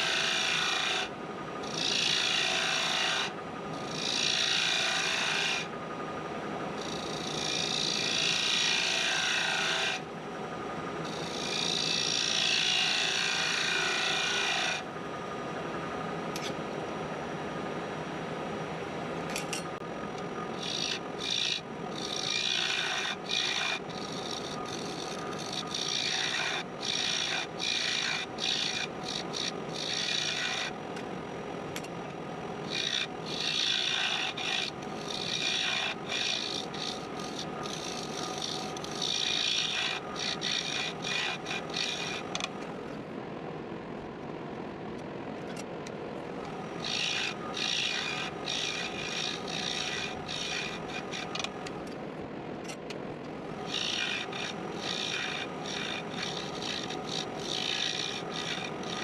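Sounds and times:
wood lathe humming: 0.0 - 1.0, 1.6 - 5.6, 6.8 - 10.0, 11.0 - 14.8, 20.5 - 31.1, 32.4 - 42.5, 46.4 - 51.7, 53.4 - 59.0
turning tool scraping wood: 20.6 - 30.7, 32.7 - 42.6, 46.5 - 51.6, 53.5 - 59.0.

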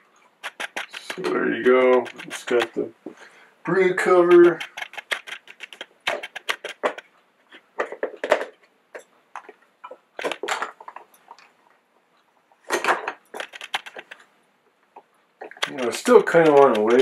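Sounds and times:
plastic parts clicking: 0.4 - 2.8, 4.2 - 7.1, 10.2 - 11.5, 12.7 - 14.2
plastic parts clattering: 7.8 - 11.5, 12.6 - 14.2.

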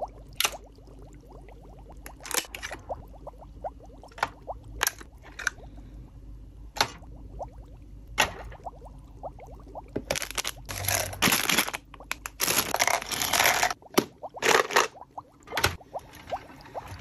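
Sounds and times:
plastic packaging crinkling: 10.1 - 13.8.

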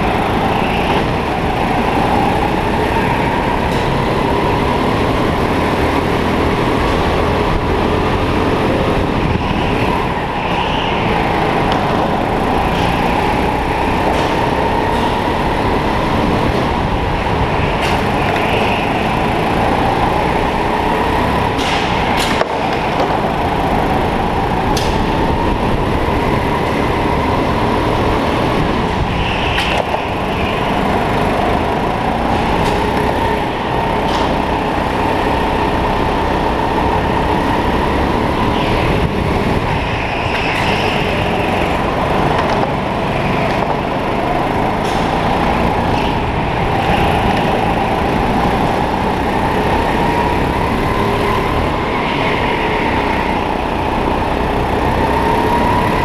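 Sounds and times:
go-kart engine racing: 0.0 - 56.0.

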